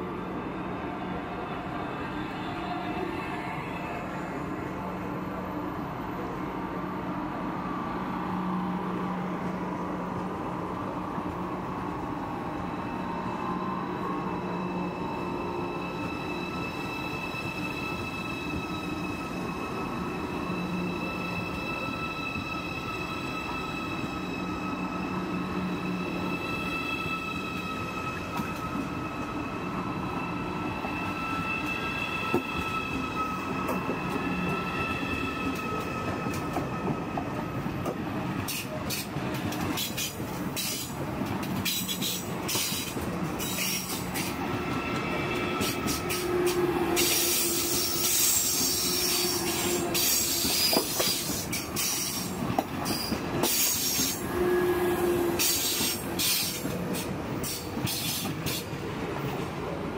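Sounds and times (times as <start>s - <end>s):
train high whine: 0.0s - 59.9s
wheels hissing squeal: 12.8s - 36.1s, 41.7s - 58.7s.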